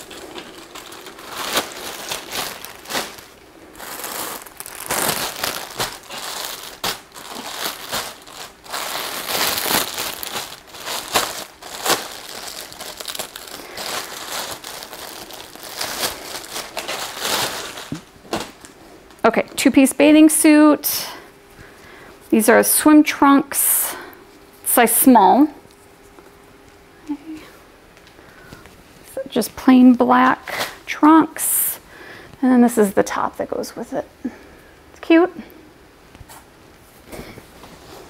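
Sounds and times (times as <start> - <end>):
plastic packaging crinkling: 0.0 - 19.6.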